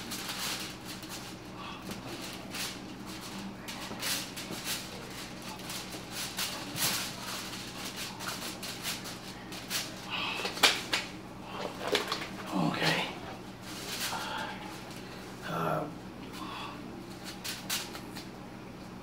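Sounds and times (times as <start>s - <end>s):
foil and plastic gloves crinkling: 0.0s - 15.4s, 17.0s - 18.4s.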